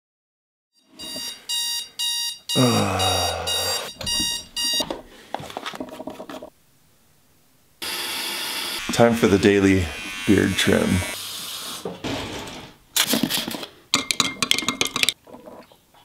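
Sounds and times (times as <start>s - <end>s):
alarm beeping in short bursts: 0.8s - 4.8s
man groaning: 2.6s - 3.9s.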